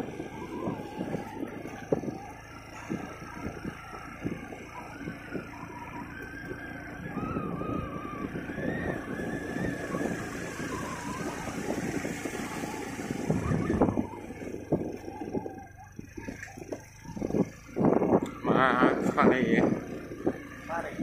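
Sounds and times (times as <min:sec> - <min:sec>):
motorcycle engine running: 0:00.0 - 0:21.0
wind rumbling on microphone: 0:00.0 - 0:21.0.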